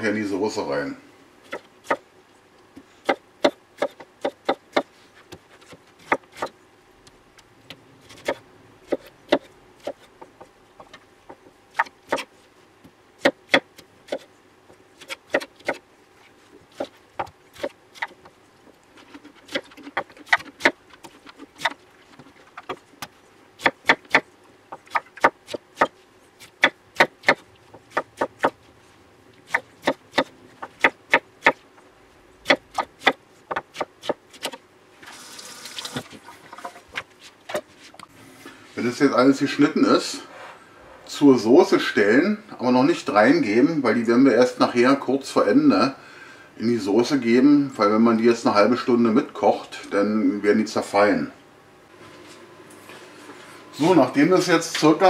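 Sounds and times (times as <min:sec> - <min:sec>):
knife chopping on wooden board: 0:03.0 - 0:06.5, 0:15.0 - 0:15.8, 0:22.6 - 0:28.6, 0:29.5 - 0:31.6, 0:32.4 - 0:34.6.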